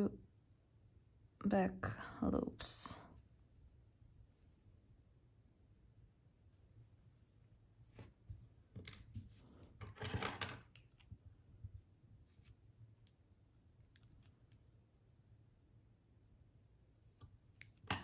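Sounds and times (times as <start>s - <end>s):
scissors snipping yarn: 16.9s - 18.0s.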